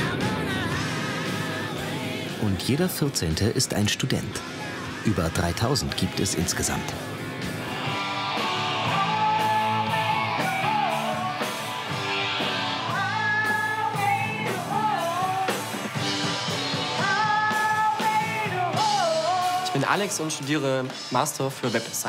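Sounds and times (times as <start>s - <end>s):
person singing: 0.0s - 2.8s, 8.4s - 15.8s, 16.9s - 20.5s
electric guitars strumming: 0.0s - 3.3s, 4.2s - 22.0s.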